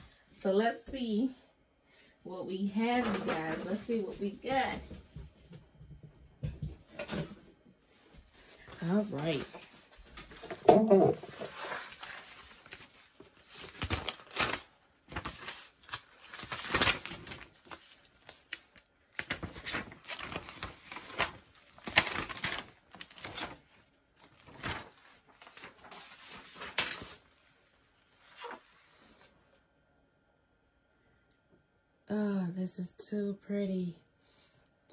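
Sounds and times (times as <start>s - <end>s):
paper rustling and crinkling: 2.8s - 4.1s, 7.0s - 29.4s.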